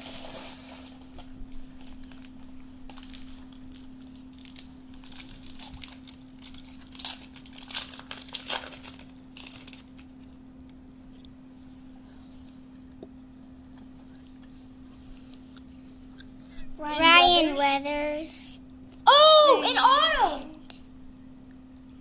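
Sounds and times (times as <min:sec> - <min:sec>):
card pack wrapper crinkling: 0:01.8 - 0:10.1.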